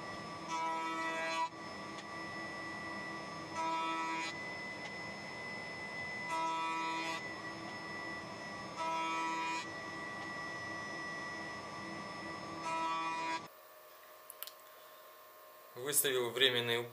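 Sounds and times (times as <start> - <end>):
table saw whining: 0.0 - 13.5.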